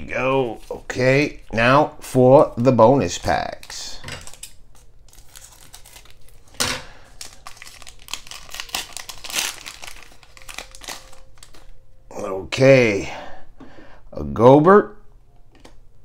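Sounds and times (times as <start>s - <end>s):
wrapper crinkling and rustling: 3.1s - 11.8s
scissors cutting plastic pack: 3.6s - 6.5s, 7.2s - 11.7s.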